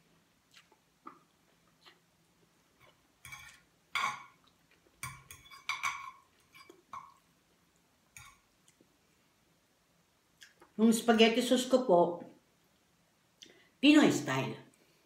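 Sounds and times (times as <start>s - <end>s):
fork clinking on ceramic plate: 3.2s - 4.4s, 5.0s - 7.2s, 8.2s - 8.4s.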